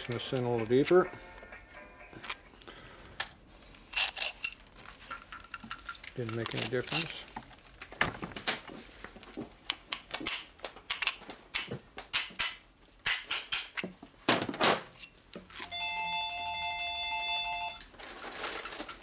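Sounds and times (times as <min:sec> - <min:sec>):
phone ringing: 0:01.0 - 0:02.4, 0:15.6 - 0:17.9.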